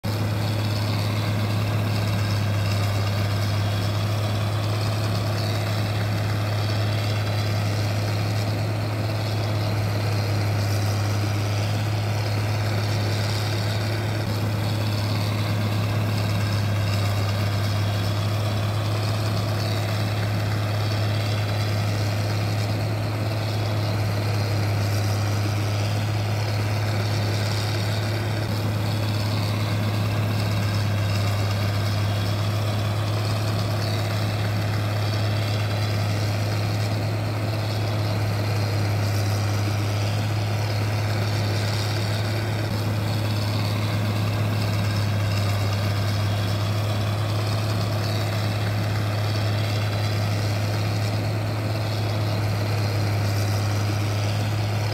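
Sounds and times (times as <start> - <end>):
low mechanical hum: 0.0 - 54.9.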